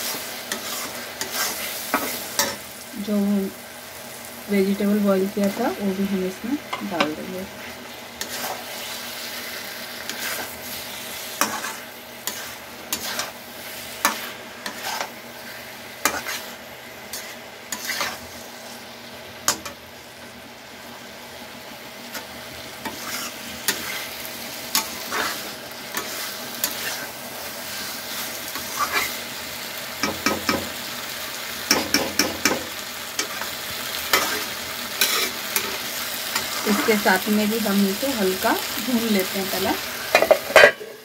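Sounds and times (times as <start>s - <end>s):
frying sizzle: 0.0s - 41.0s
metal spatula scraping pan: 11.3s - 13.4s, 16.0s - 18.4s, 22.8s - 24.1s, 34.1s - 35.8s.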